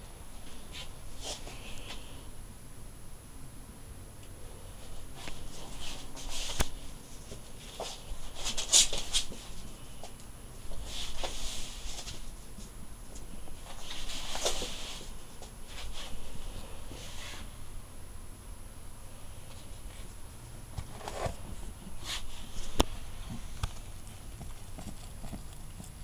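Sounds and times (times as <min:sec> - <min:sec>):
rabbit paws scuffling on floor: 0:04.8 - 0:17.5, 0:19.5 - 0:26.0.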